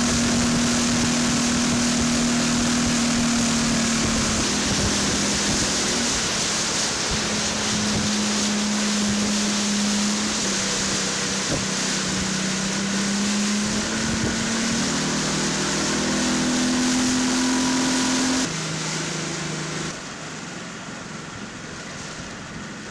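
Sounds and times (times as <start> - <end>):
motorboat engine hum: 0.0 - 22.9
wind and water rushing: 0.0 - 22.9.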